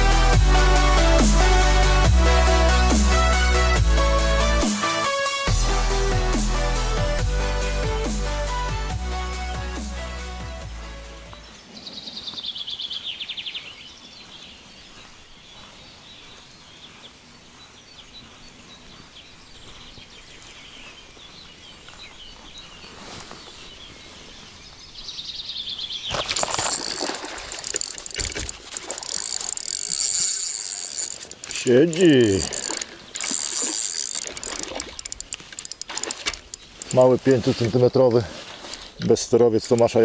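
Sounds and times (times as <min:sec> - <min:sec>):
background music: 0:00.0 - 0:11.6
songbird trilling: 0:11.3 - 0:17.0, 0:24.9 - 0:40.0
fishing reel whirring: 0:26.3 - 0:37.0.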